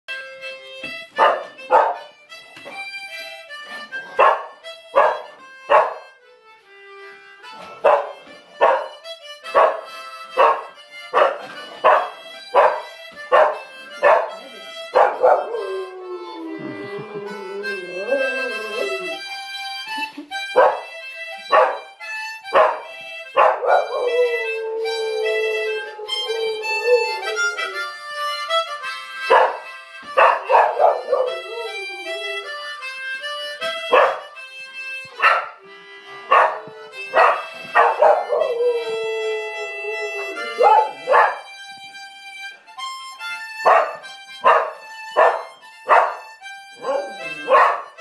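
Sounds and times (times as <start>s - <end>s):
harmonica chords: 0.1s - 48.0s
dog howling: 13.4s - 19.3s, 23.4s - 28.0s, 30.2s - 32.5s, 36.3s - 41.5s, 46.8s - 47.8s.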